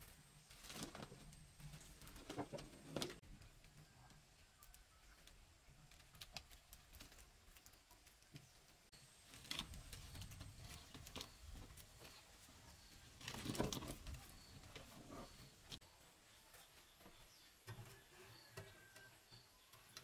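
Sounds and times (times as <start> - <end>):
fruit bunches rustling and clicking: 0.0 - 15.8.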